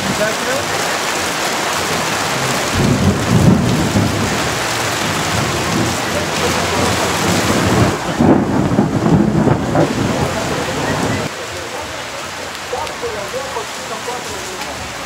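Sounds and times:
low rumbles: 0.0s - 11.4s
hard rain on plastic tarp: 0.0s - 15.0s.

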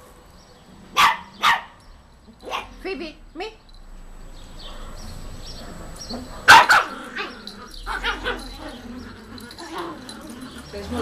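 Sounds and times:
puppy barking sharply: 1.0s - 1.8s, 2.4s - 2.8s, 6.3s - 7.0s
puppy yapping: 2.4s - 2.8s, 6.1s - 10.0s.

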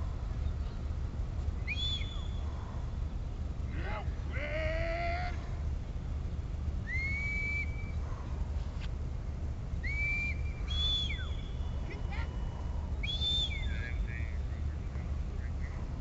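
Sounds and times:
steady low rumble: 0.0s - 16.0s
shepherd's whistle calls: 1.6s - 2.5s, 6.8s - 8.0s, 9.8s - 13.9s.

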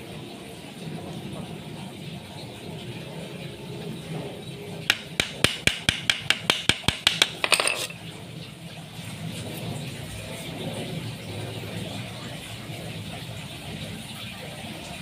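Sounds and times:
hammer tapping nail into wood: 4.9s - 7.9s.

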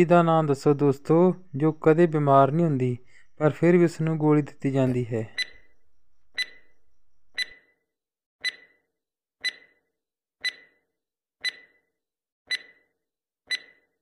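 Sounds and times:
clock-like timer ticks: 5.3s - 5.7s, 6.4s - 6.7s, 7.3s - 7.6s, 8.4s - 8.8s, 9.4s - 9.8s, 10.4s - 10.8s, 11.4s - 11.8s, 12.5s - 12.9s, 13.5s - 13.9s.

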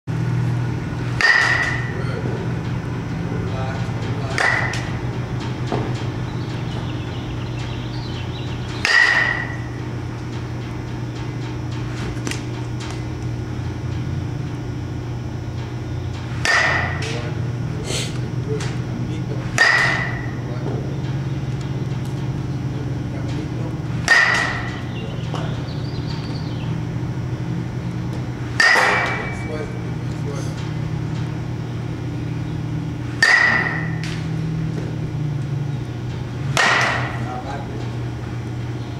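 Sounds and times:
low hum: 0.1s - 38.9s
baseball bat hitting ball: 1.2s - 2.1s, 4.3s - 5.0s, 8.8s - 9.8s, 16.4s - 17.2s, 19.5s - 20.4s, 24.0s - 24.9s, 28.6s - 29.5s, 33.1s - 35.0s, 36.5s - 37.3s.

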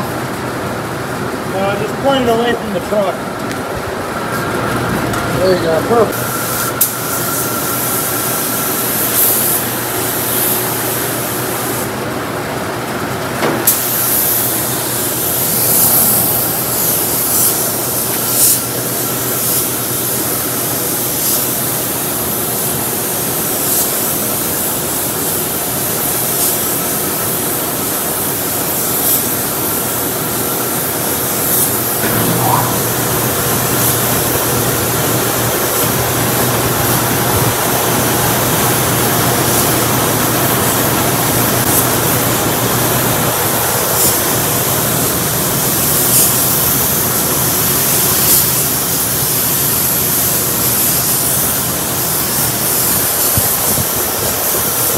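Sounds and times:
low hum of fans: 0.0s - 54.9s
spray gun hissing: 6.1s - 11.9s, 13.7s - 26.8s.

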